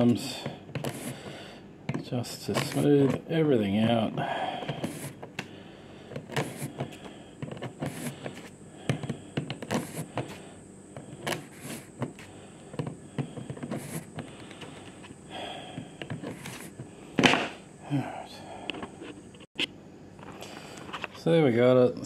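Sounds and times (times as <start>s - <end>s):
soft rubbing: 4.8s - 5.3s, 6.2s - 8.6s, 9.6s - 10.4s, 11.2s - 12.3s, 13.6s - 15.0s.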